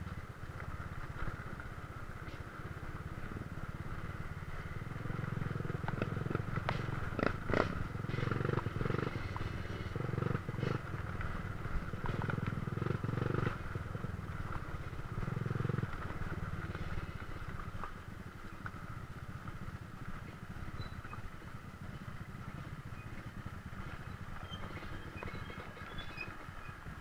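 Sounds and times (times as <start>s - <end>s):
dirt bike engine revving: 4.5s - 13.8s.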